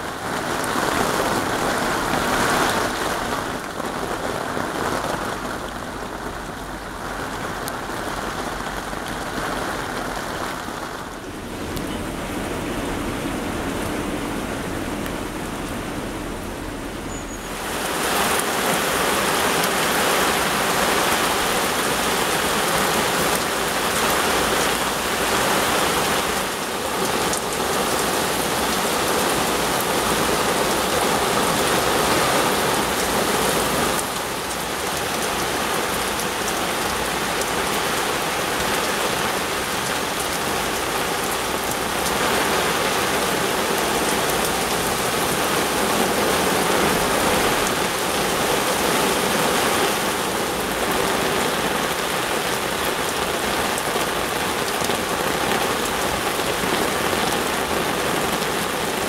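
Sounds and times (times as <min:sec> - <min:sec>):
torrential rain pouring: 0:00.0 - 0:59.0.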